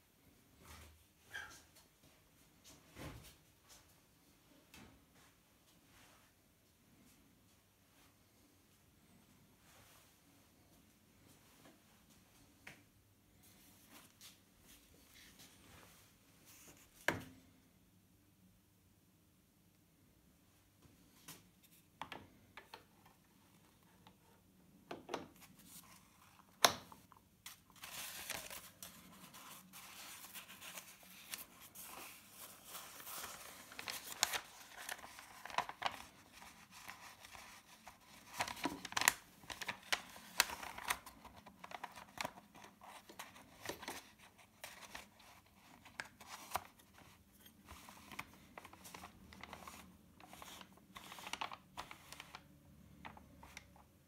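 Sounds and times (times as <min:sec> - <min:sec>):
paper rustling and crinkling: 0:25.3 - 0:53.9.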